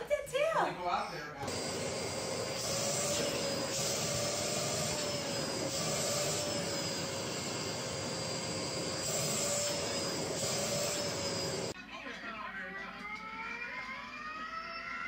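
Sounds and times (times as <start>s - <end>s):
vacuum cleaner running: 0.0s - 11.8s.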